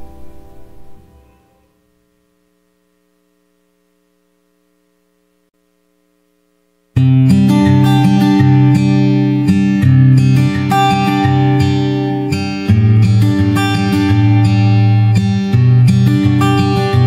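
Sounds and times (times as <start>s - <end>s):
faint hum of held tones: 0.0s - 7.0s
acoustic guitar strumming: 7.0s - 17.0s.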